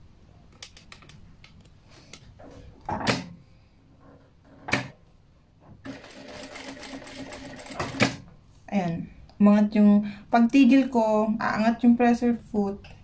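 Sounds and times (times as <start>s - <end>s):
small clicks and knocks: 0.5s - 3.3s
sewing machine stitching: 5.8s - 8.3s.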